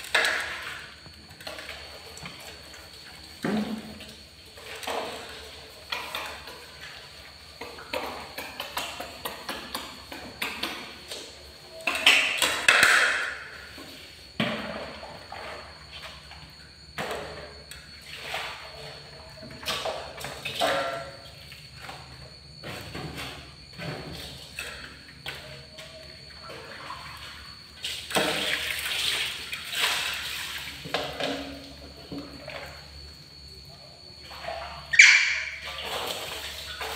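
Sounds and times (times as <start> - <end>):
faint high whine: 0.0 - 36.9.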